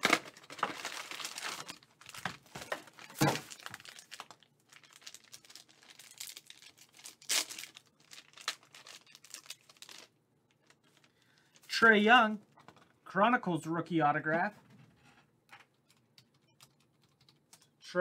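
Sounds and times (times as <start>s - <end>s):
foil card pack crinkling and tearing: 0.0s - 11.6s.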